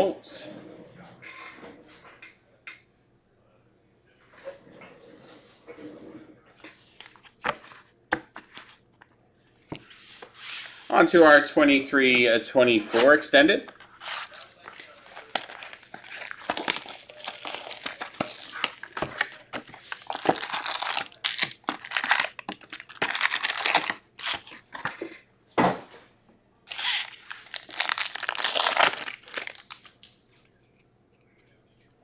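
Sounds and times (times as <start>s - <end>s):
foil wrappers crinkling and tearing: 13.7s - 24.9s, 26.7s - 30.1s.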